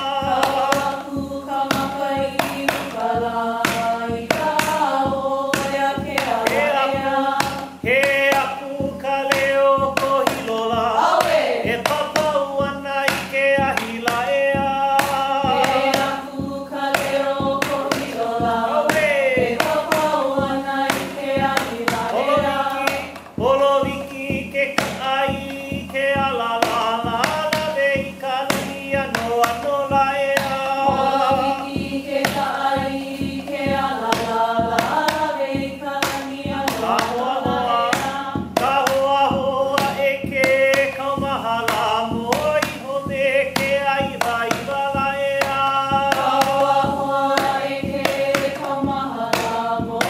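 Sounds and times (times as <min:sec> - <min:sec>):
percussion beat: 0:00.0 - 0:50.0
voices chanting: 0:00.0 - 0:50.0.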